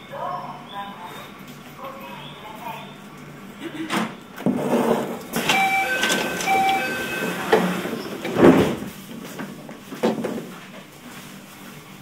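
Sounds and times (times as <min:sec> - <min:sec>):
sliding doors knocking and clattering: 0:04.4 - 0:10.6
train door chime beeps: 0:05.4 - 0:07.9.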